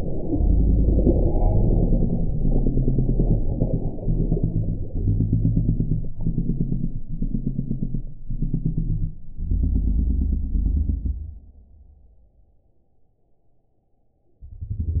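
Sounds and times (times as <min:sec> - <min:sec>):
deep rumbling low tones: 0:00.0 - 0:12.6, 0:14.4 - 0:15.0.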